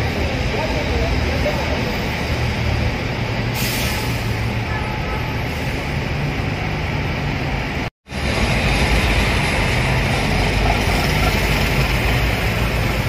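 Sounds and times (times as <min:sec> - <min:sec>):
short burst of hiss: 0:03.6 - 0:04.3.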